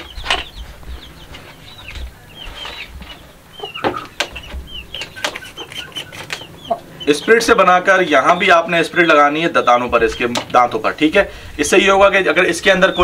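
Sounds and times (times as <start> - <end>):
chickens clucking: 0.0 - 13.0
sharp clicks: 4.2 - 6.5.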